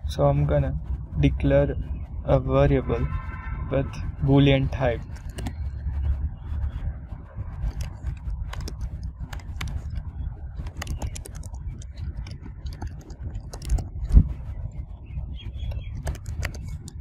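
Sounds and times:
low steady rumble: 0.0 - 17.0
keyboard typing clicks: 5.2 - 5.6, 7.7 - 10.0, 10.6 - 14.2, 15.6 - 17.0.

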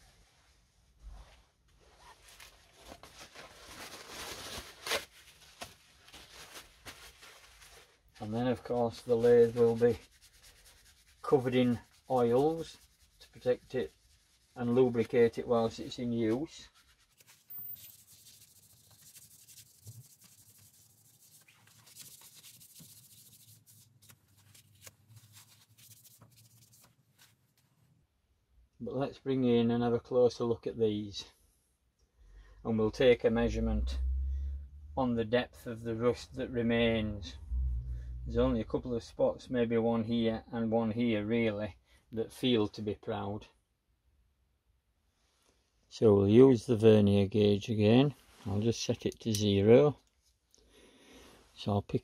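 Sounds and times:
cloth rubbing on steel: 8.6 - 27.6
gloved hands rustling: 9.0 - 27.8.

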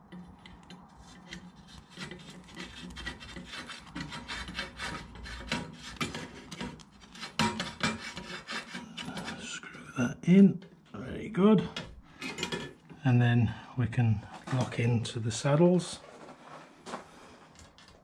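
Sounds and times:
screw grinding into wall plug: 0.1 - 9.5.

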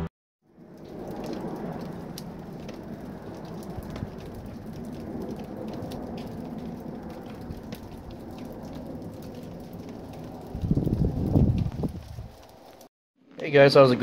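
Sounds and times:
light crackles: 0.5 - 14.0.

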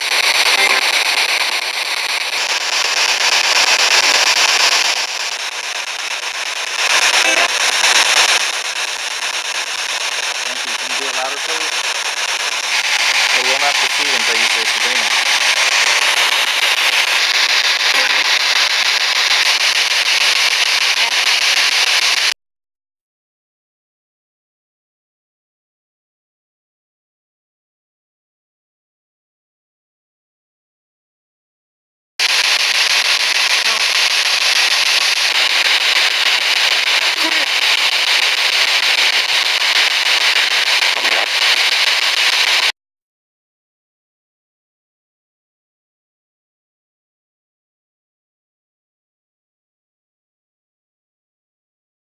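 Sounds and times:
radio static hissing: 0.0 - 22.4, 32.2 - 42.8.

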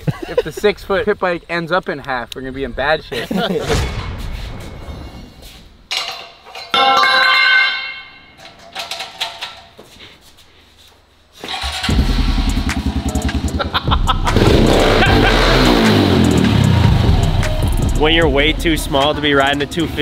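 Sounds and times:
pit bike engine running: 11.7 - 20.0.

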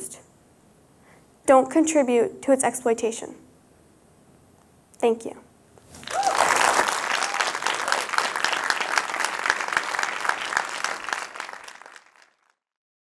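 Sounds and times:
audience applauding: 5.9 - 12.6.

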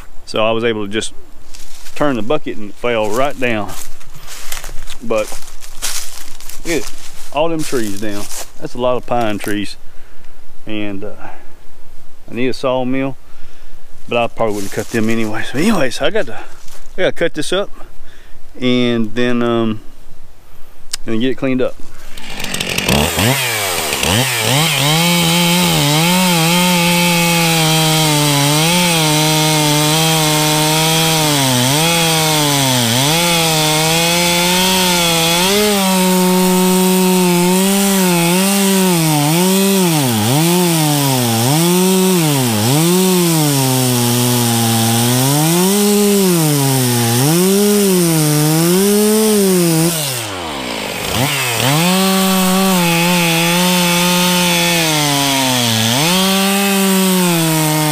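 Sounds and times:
chainsaw revving while cutting: 22.2 - 57.9.

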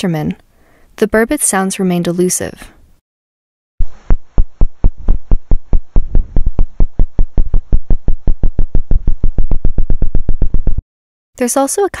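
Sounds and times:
fish calling with low knocks: 4.0 - 10.8.

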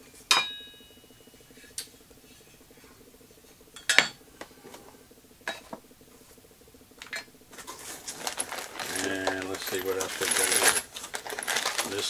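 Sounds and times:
faint steady hum: 0.0 - 12.0
metal parts clinking: 7.0 - 12.0.

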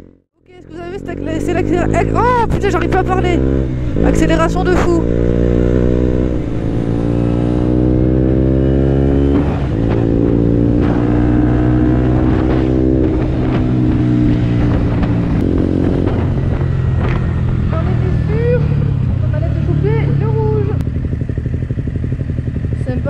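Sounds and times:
motorcycle engine accelerating: 0.0 - 23.0.

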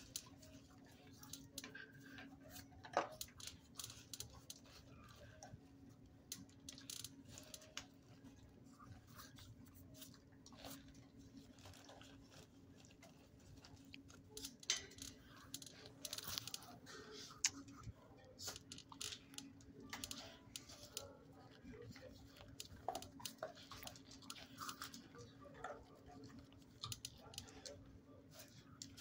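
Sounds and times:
dog chewing food: 6.4 - 29.0.

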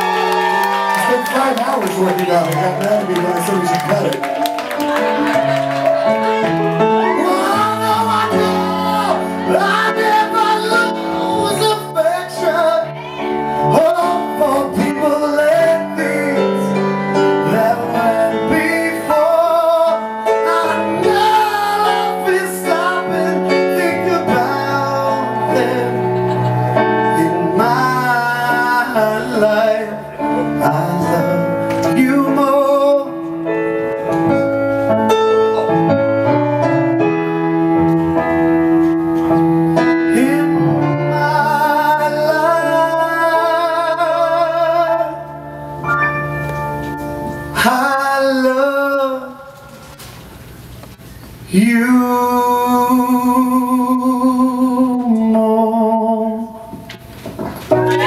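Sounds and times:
instrumental accompaniment: 0.0 - 48.1, 57.3 - 58.0
man singing into a microphone: 7.1 - 33.6, 39.9 - 45.5, 47.5 - 49.9, 51.5 - 56.9.

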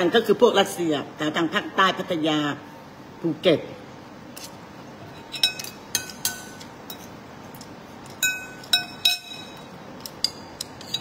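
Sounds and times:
spoon clinking on ceramic plate: 5.2 - 7.1, 8.2 - 11.0.

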